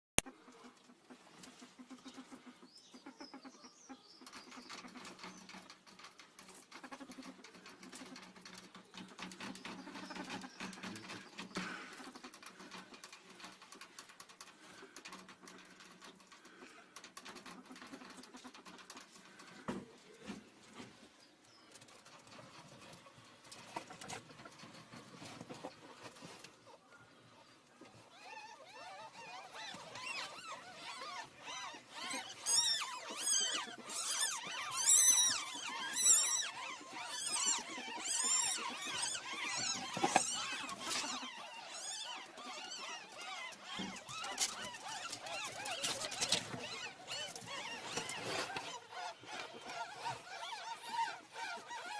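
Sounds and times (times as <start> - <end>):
ferret scratching and rustling: 29.0 - 51.9.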